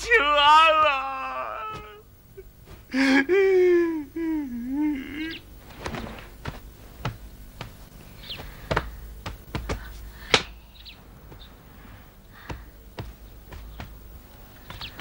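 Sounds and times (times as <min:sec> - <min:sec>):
footsteps on a hard floor: 0:05.8 - 0:10.0, 0:12.5 - 0:15.0.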